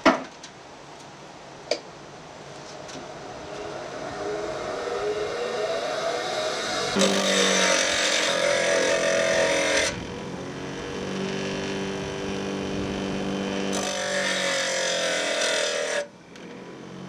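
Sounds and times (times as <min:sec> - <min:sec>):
grinder wheel grinding metal: 0:03.0 - 0:16.5
grinder motor hum: 0:03.0 - 0:16.7.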